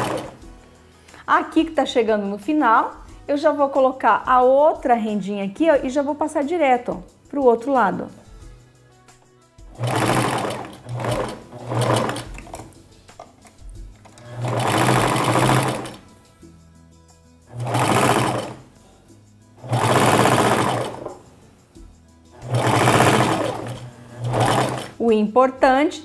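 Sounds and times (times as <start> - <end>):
sewing machine stitching: 0.0 - 0.4, 9.7 - 12.8, 14.0 - 16.0, 17.5 - 18.7, 19.6 - 21.2, 22.4 - 25.0.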